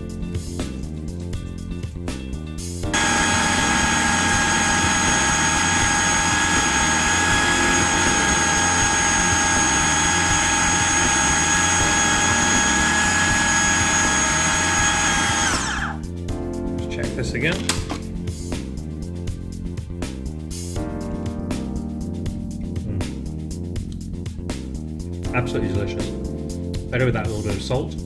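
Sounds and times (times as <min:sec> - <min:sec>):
food processor motor whining: 0:02.9 - 0:16.1.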